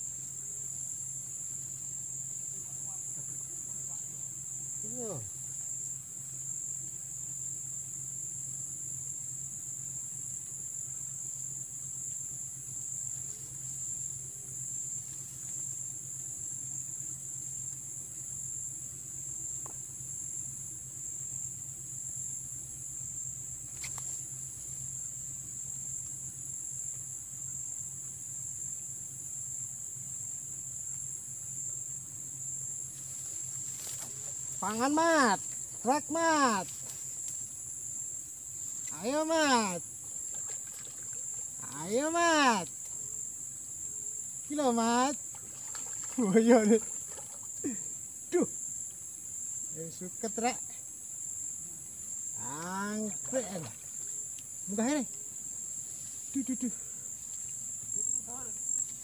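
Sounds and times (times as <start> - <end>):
insects chirring: 0.0 - 59.0.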